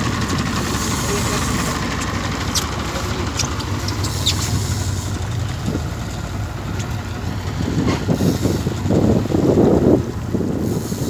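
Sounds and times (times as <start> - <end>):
boat engine rumbling: 0.0 - 11.0
wind buffeting microphone: 2.4 - 11.0.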